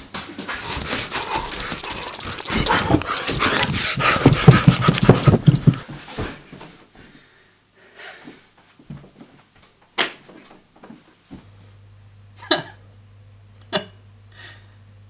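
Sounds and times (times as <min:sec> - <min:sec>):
man breathing heavily: 0:00.5 - 0:05.8.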